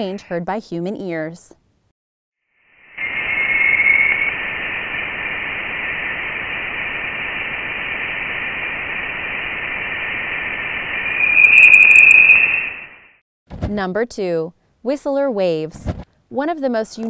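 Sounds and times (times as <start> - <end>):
steady hiss: 2.8 - 13.0
high-pitched tone: 3.0 - 13.1.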